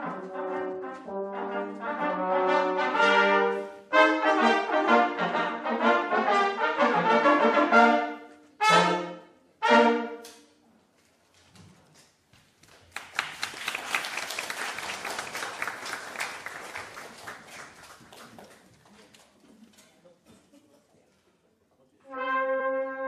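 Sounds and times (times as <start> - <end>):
brass trio playing chords: 0.0 - 10.4, 22.0 - 23.0
audience applause: 12.7 - 19.1.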